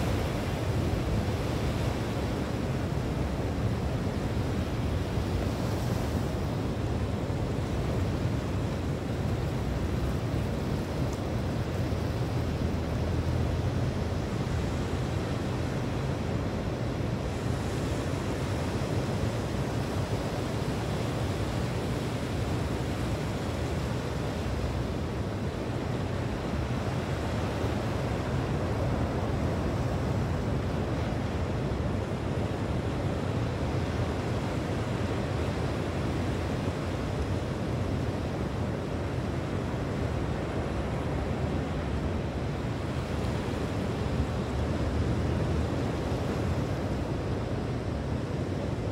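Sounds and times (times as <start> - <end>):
sea surf: 0.0 - 48.9.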